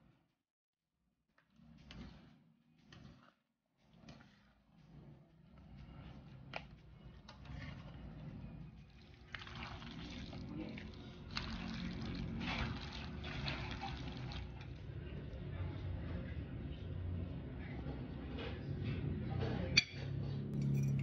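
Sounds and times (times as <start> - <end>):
spatula squishing and scraping pasta: 1.4 - 14.8.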